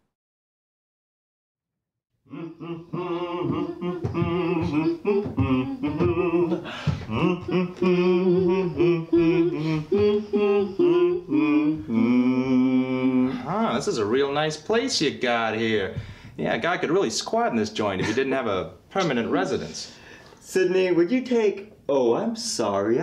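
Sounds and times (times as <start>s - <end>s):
people singing: 2.3s - 14.2s.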